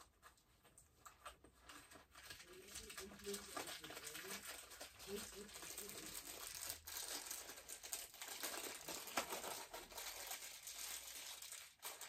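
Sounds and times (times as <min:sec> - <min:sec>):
rustling and crinkling of items: 0:00.0 - 0:12.0.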